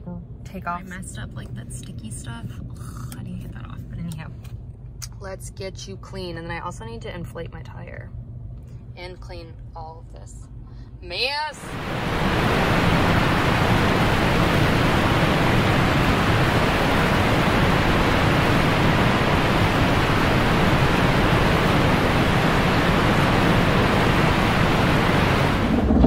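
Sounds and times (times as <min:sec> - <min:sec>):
car wash spraying water: 0:11.7 - 0:26.0.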